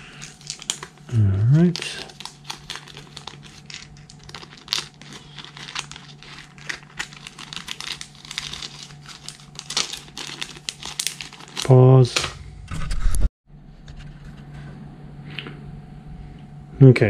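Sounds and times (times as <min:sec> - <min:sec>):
plastic bag crinkling: 0:00.0 - 0:12.2.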